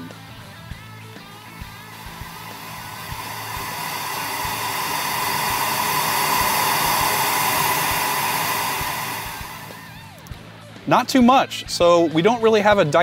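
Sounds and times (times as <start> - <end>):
pink noise hiss: 1.9 - 9.9.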